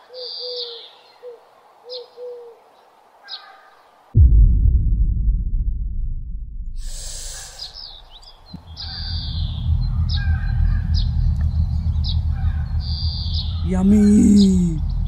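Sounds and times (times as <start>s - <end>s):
steady low rumble: 4.2s - 15.0s
birds chirping: 6.9s - 15.0s
voice holding a note: 13.6s - 15.0s.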